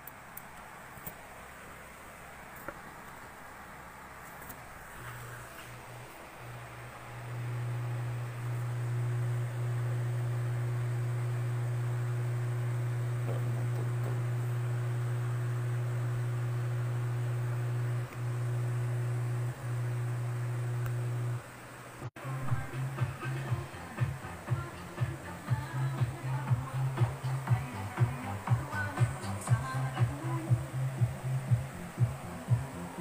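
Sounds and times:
loudspeaker low hum: 7.1s - 21.4s, 22.2s - 33.0s.

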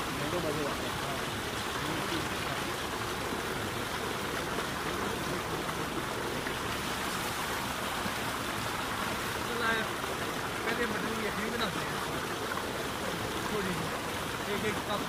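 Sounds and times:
water gushing into tank: 0.0s - 15.0s.

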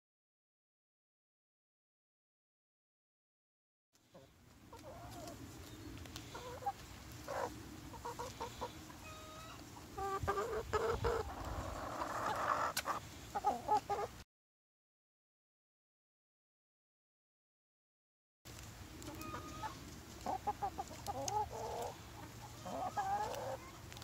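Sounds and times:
hens clucking: 4.1s - 14.2s, 19.0s - 24.0s.

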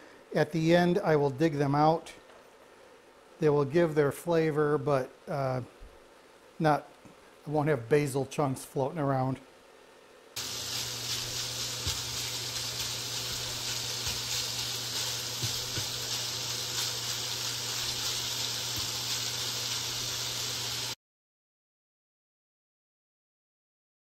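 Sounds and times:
sausage sizzling in a skillet: 10.4s - 21.0s
spatula tapping: 10.7s - 16.9s.

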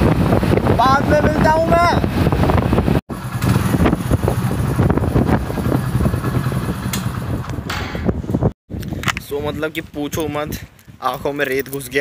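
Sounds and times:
road noise: 0.0s - 8.9s
wind buffeting microphone: 0.0s - 11.4s
motorcycle engine: 2.1s - 8.5s.

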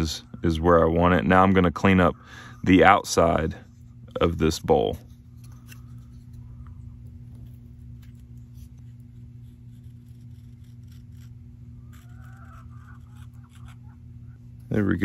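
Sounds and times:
steady low hum: 0.0s - 15.0s
knife scraping wood: 4.9s - 6.4s, 7.3s - 14.0s.

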